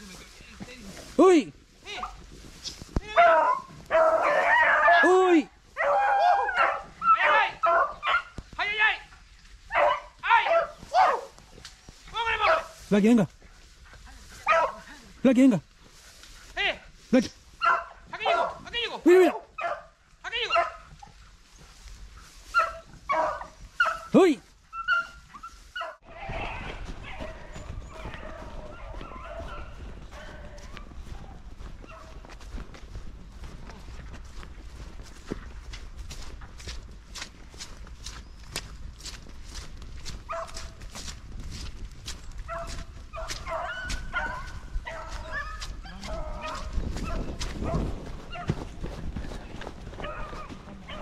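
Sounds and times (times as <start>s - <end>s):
brush rustling: 0.0s - 7.1s, 7.8s - 19.3s, 19.9s - 51.0s
footsteps: 0.0s - 51.0s
dogs baying: 3.2s - 5.1s, 5.8s - 8.4s, 9.7s - 11.4s, 14.4s - 14.9s, 17.6s - 18.6s, 19.2s - 21.2s, 22.4s - 32.3s, 40.1s - 40.8s, 42.2s - 51.0s.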